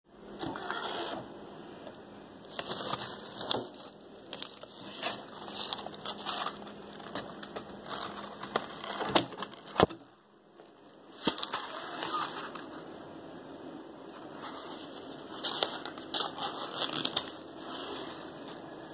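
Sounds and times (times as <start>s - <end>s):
plastic rustling and crinkling: 2.4s - 12.8s, 14.2s - 18.7s.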